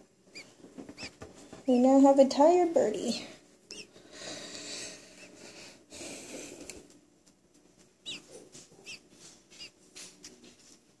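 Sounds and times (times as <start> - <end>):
baby bird peeping: 0.0 - 2.1, 3.7 - 4.0, 8.0 - 9.8.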